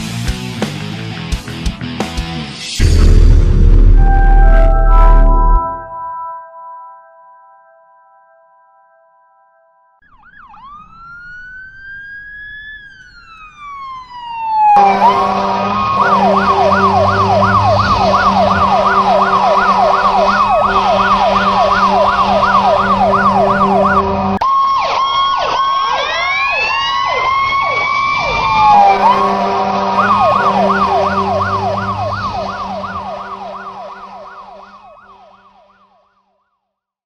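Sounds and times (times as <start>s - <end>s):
electronic siren yelping: 10.0s - 35.8s
overlapping siren glides: 10.0s - 36.5s.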